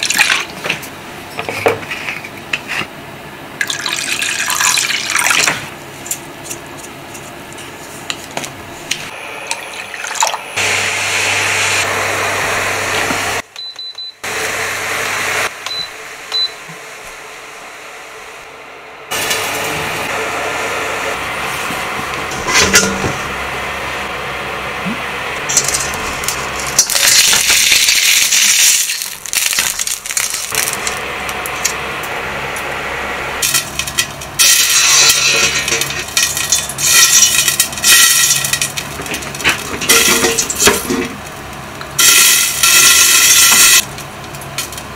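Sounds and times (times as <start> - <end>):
low hum: 14.3 - 27.5, 30.0 - 35.9
metal cookware clinking: 39.4 - 41.1.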